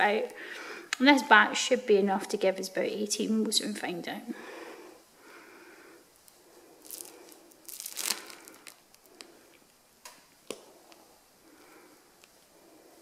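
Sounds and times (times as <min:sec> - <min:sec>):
plastic piping bag crinkling: 0:06.2 - 0:11.0.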